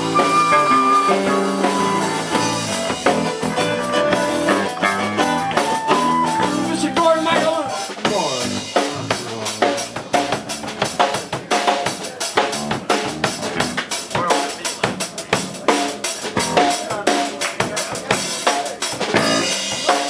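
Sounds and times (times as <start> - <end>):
flute: 0.0 - 7.9
electric bass: 0.0 - 11.4, 12.4 - 15.6, 16.2 - 16.8, 19.0 - 20.0
drum kit: 0.0 - 20.0
guitar: 0.0 - 20.0.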